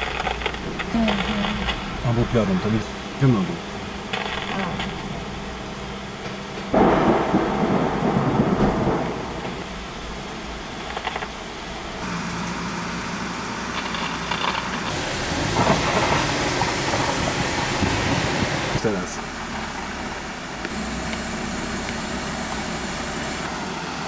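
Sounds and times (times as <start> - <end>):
thunder rumbling: 0.0 - 12.1, 14.7 - 19.0
heavy rain: 0.0 - 24.0.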